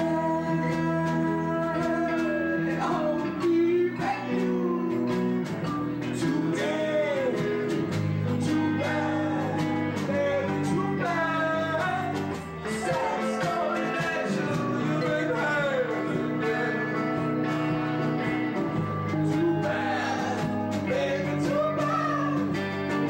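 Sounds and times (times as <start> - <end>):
drums with cymbal hits: 0.0 - 16.4
guitar: 0.0 - 23.0
person singing: 0.0 - 23.0.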